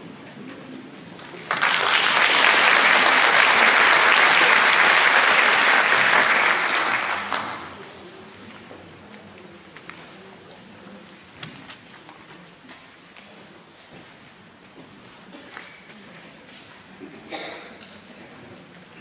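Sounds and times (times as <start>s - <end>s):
audience applauding: 1.2s - 7.9s.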